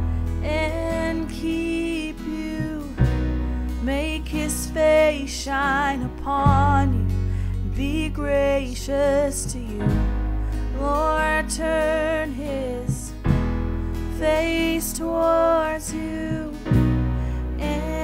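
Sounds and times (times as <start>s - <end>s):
guitar: 0.0s - 18.0s
sustained low chords: 0.0s - 18.0s
person singing slow phrases: 14.2s - 16.8s.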